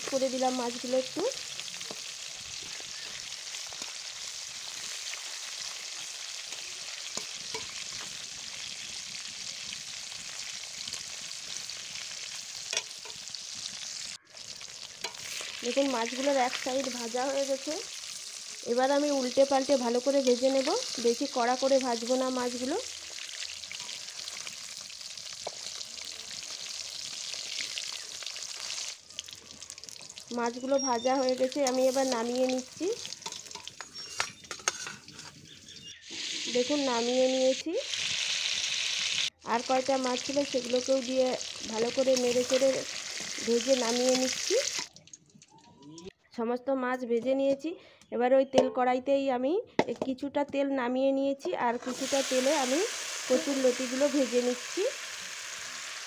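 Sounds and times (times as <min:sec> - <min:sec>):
fish sizzling in hot oil: 0:00.0 - 0:45.6, 0:51.7 - 0:56.0
metal spatula turning fish: 0:01.6 - 0:08.6, 0:12.5 - 0:18.5, 0:20.0 - 0:27.2, 0:28.2 - 0:36.8, 0:40.5 - 0:43.4.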